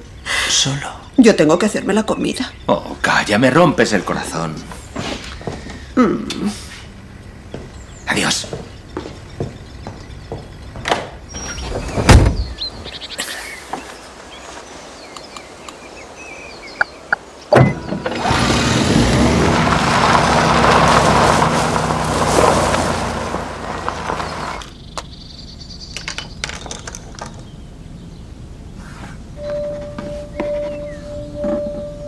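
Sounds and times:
faint bird chirps: 5.1 - 17.9, 27.3 - 32.0
van engine running: 17.6 - 25.8.

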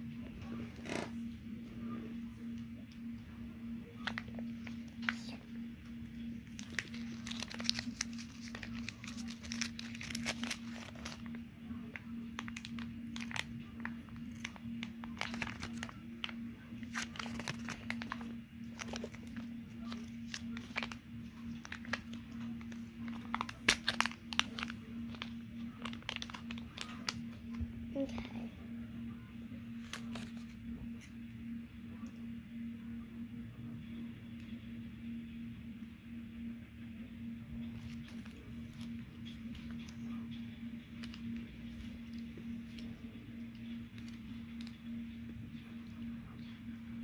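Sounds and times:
low hum: 0.0 - 47.0
plastic shell crinkling: 4.0 - 5.4, 6.4 - 27.6, 40.7 - 44.9.

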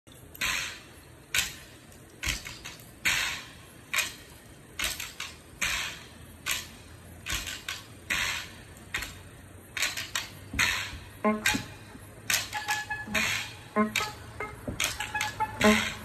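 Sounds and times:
jawbone percussion rattling: 9.8 - 16.0.

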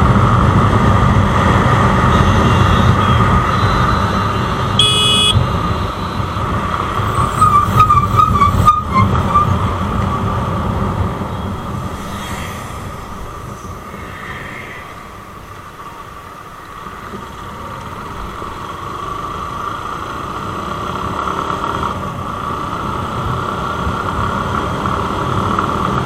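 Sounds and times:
vehicle engine and road rumble: 0.0 - 26.0
car horn beep: 2.0 - 6.4.

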